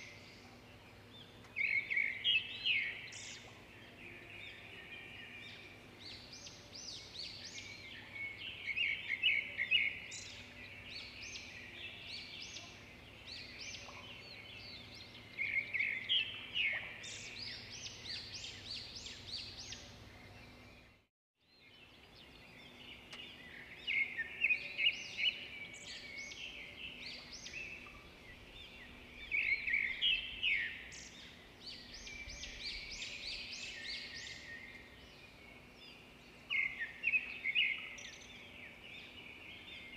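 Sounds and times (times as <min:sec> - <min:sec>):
small birds chirping: 0:00.0 - 0:39.9
steady background hiss: 0:21.8 - 0:39.9.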